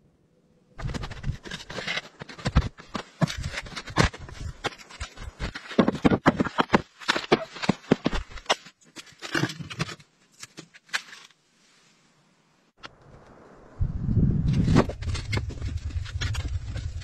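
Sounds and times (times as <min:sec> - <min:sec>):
firewood logs clattering: 0:00.8 - 0:08.6.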